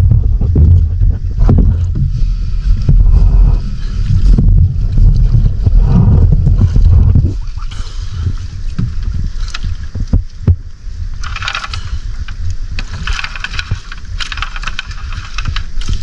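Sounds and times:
wind rumble on microphone: 0:00.0 - 0:16.0
wet fishing net hauled aboard: 0:03.4 - 0:16.0.

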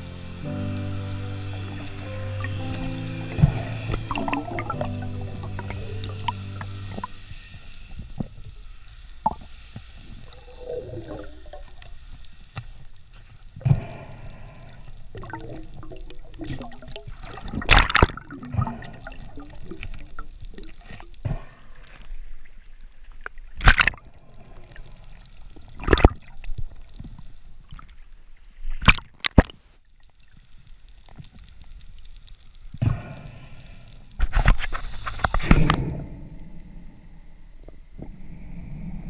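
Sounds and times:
muffled water sloshing: 0:00.3 - 0:07.3.

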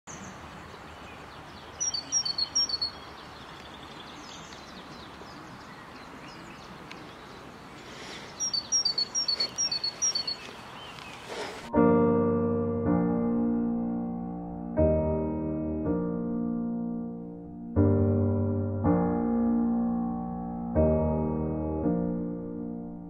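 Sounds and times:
bird singing two-note phrase: 0:01.8 - 0:03.0.

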